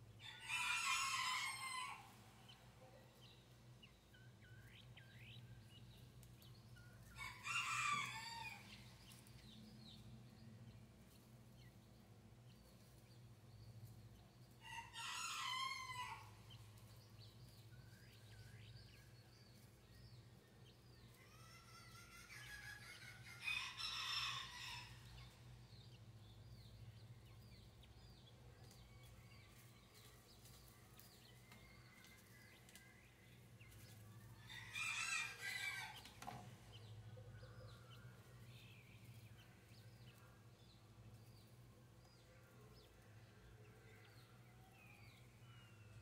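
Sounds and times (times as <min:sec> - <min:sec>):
quail chicks peeping: 0:00.1 - 0:46.0
rooster crowing: 0:00.3 - 0:02.2, 0:07.2 - 0:08.8, 0:34.6 - 0:36.1.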